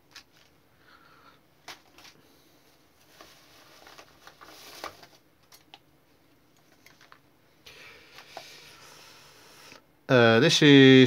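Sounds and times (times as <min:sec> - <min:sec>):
plastic bags crinkling: 0:03.0 - 0:05.8.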